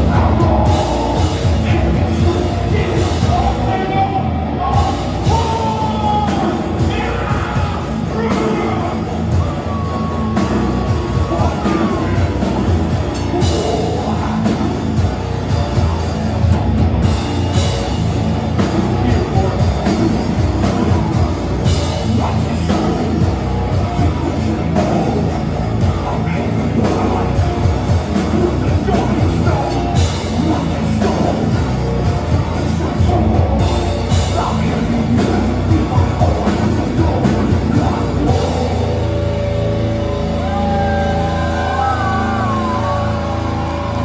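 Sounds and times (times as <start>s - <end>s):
heavy distorted guitars: 0.0s - 44.0s
high sliding guitar tones: 0.0s - 44.0s
metal vocals: 0.0s - 44.0s
pounding drum kit: 0.0s - 44.0s.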